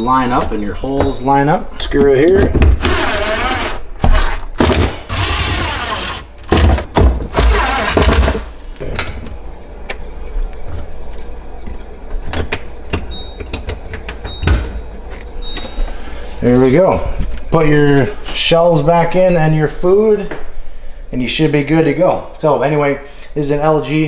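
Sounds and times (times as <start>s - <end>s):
power screwdriver driving screws: 2.8s - 6.7s, 7.3s - 8.4s.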